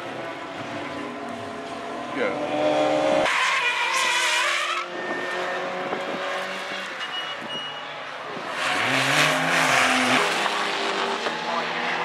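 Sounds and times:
race car tyres skidding: 3.1 - 12.0.

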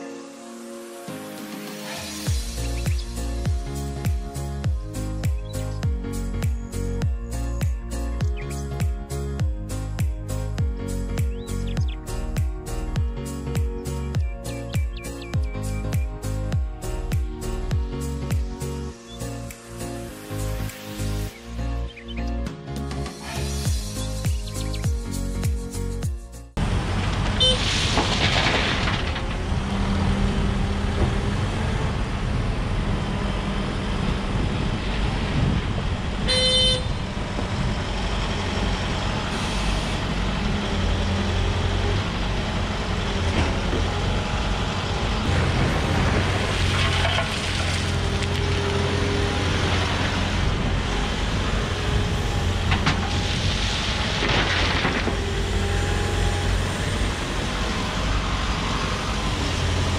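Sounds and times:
diesel engine droning: 26.6 - 59.9
short horn toot: 36.3 - 37.0.

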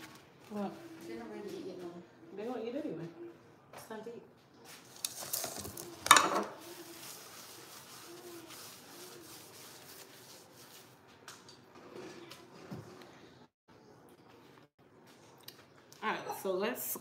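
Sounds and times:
paper towel wiping countertop: 4.7 - 11.1.

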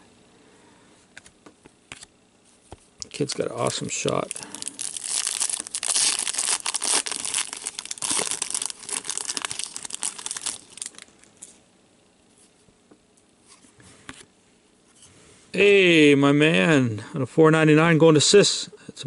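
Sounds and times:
foil wrapper tearing and crinkling: 3.1 - 11.4.

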